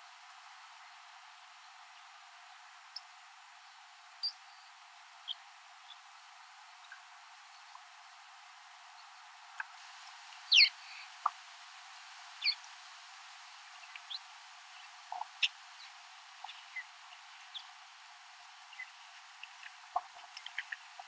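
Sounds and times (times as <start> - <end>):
faint steady hiss: 0.0 - 21.0
birds chirping: 10.4 - 11.4, 12.4 - 12.8, 13.7 - 21.0.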